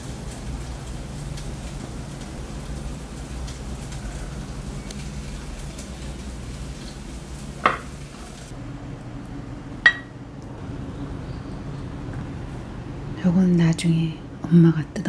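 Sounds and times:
tableware clinking: 0:07.6 - 0:08.0, 0:09.8 - 0:10.1.

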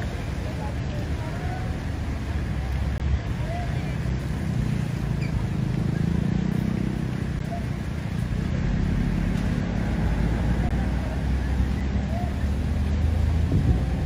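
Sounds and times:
flowing floodwater: 0:00.0 - 0:14.0
wind buffeting microphone: 0:10.0 - 0:14.0.

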